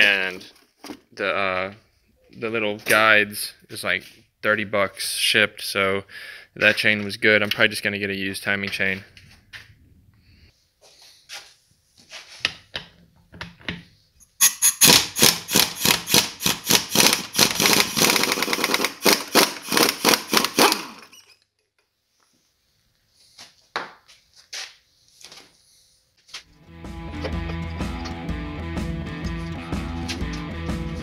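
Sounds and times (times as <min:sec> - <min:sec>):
impact wrench hammering: 0:14.3 - 0:21.1.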